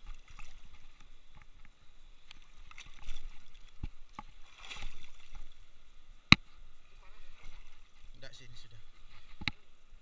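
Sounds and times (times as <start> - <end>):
sea water sloshing: 0.0 - 6.1, 6.8 - 9.8.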